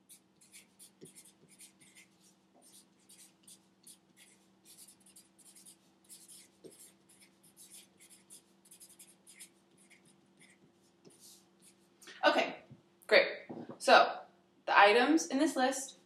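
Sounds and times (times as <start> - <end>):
marker writing on a board: 0.0 - 11.9
faint steady hum: 0.0 - 16.0.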